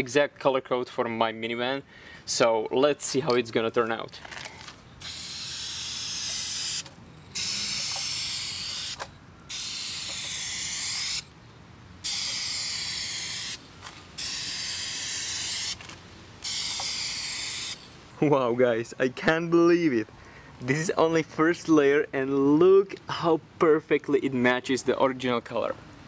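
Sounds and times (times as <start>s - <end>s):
spray can hissing: 5.0s - 11.3s, 12.0s - 13.6s, 14.2s - 15.8s, 16.4s - 17.9s.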